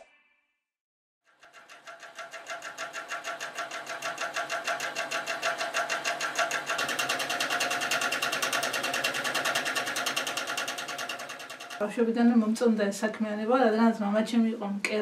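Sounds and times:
sewing machine stitching: 1.3 - 11.9.

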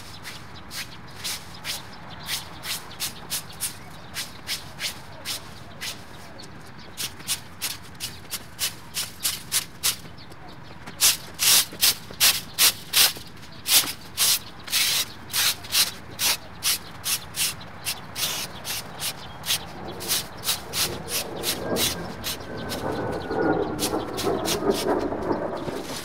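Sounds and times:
debris being swept: 0.2 - 3.4, 25.6 - 26.0.

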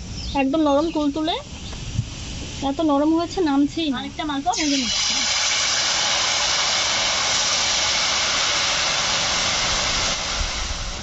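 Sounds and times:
batter sizzling in hot oil: 4.2 - 11.0.

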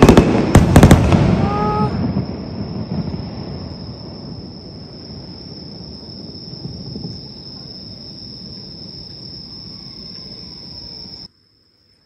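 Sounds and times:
night insects chirring: 0.0 - 12.0.

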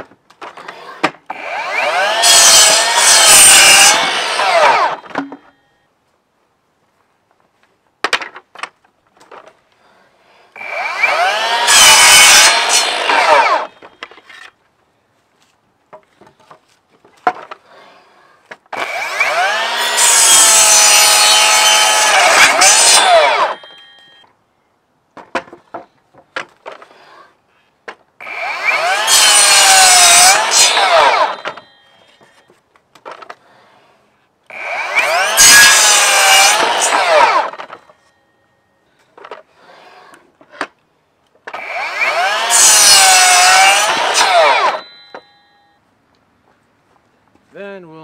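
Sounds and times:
miter saw cutting wood: 0.6 - 5.1, 10.6 - 14.0, 18.8 - 23.7, 28.2 - 31.7, 34.5 - 37.9, 41.5 - 45.0.

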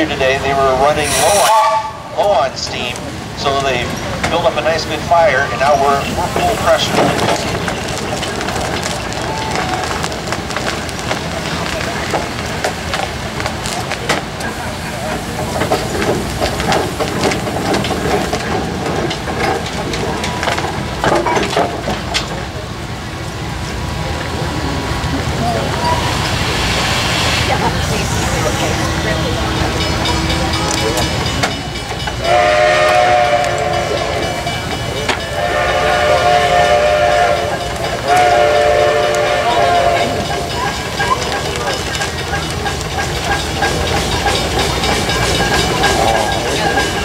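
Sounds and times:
steam engine hissing and chuffing: 0.0 - 47.0
steam whistle chord blasts: 0.9 - 2.1, 32.2 - 34.4, 35.3 - 40.3.

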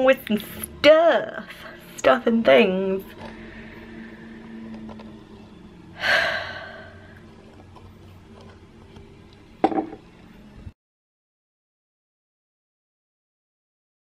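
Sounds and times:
faint steady hum: 0.0 - 10.7.

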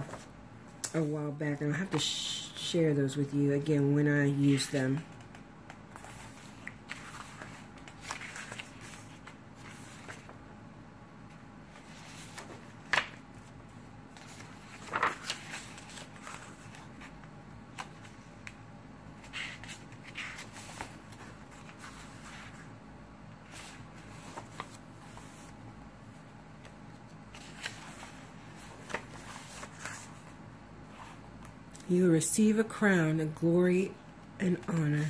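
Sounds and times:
paper pages rustling: 0.0 - 0.3, 4.4 - 10.5, 11.3 - 18.6, 19.2 - 22.7, 23.4 - 31.6.

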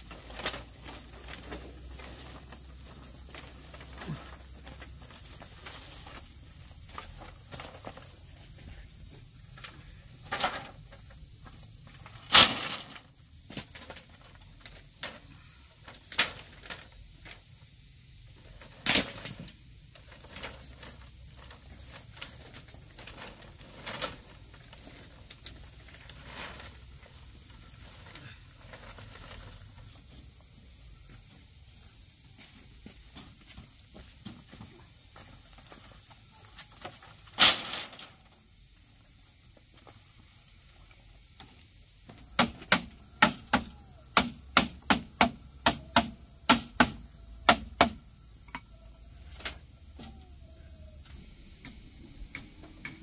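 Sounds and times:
insects trilling: 0.0 - 53.0
sharp knocks: 42.4 - 48.0.

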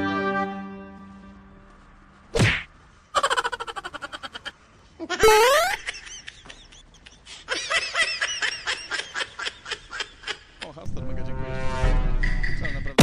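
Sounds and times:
comedy laughter sound effect: 3.2 - 10.6.

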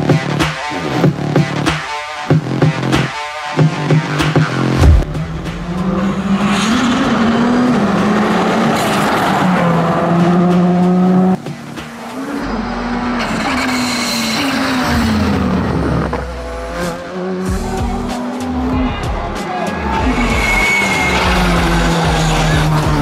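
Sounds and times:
rally car engine at high revs: 2.4 - 23.0
deep rumble: 4.8 - 8.4.

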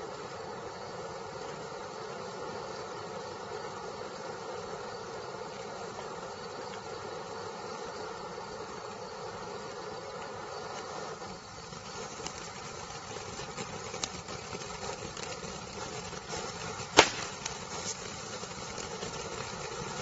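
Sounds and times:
firework crackles: 10.7 - 20.0
firework fountain rushing: 15.1 - 20.0
loud sharp crack: 16.9 - 17.6.

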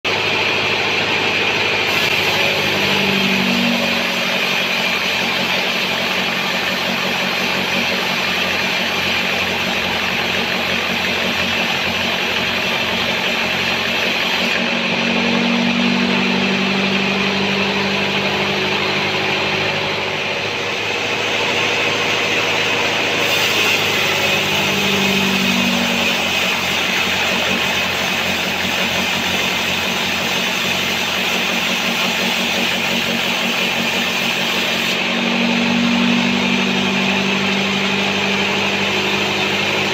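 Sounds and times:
band saw drone: 0.0 - 39.9
saw blade cutting hiss: 1.8 - 14.7, 20.9 - 39.9.

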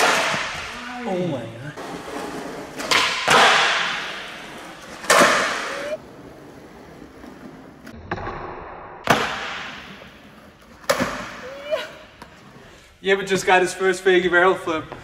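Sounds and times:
skateboard slapping on concrete: 2.8 - 4.3, 4.9 - 6.0.

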